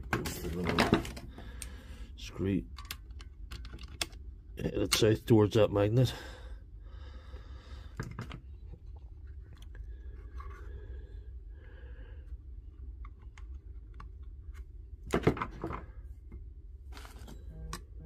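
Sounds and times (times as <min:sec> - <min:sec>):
low steady hum: 0:00.0 - 0:18.0
small clicks of plastic parts: 0:02.7 - 0:04.2, 0:12.8 - 0:15.8.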